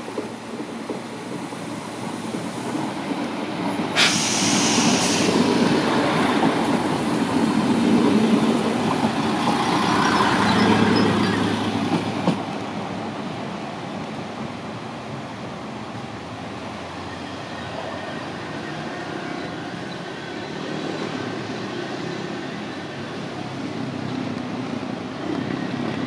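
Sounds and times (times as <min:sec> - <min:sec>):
diesel train pulling in: 0:00.0 - 0:26.0
sudden hiss: 0:04.0 - 0:05.6.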